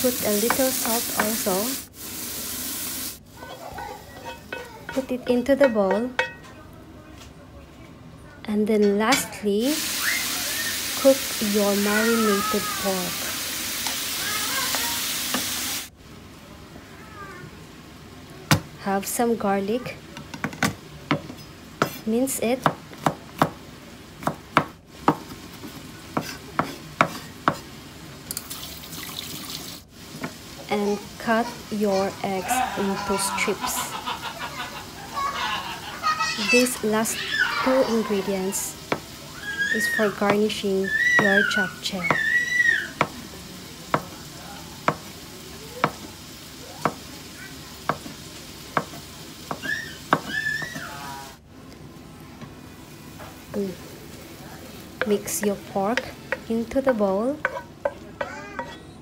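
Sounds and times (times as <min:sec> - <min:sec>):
faint hiss: 0:09.7 - 0:19.8
knife chopping on wooden board: 0:26.2 - 0:27.6.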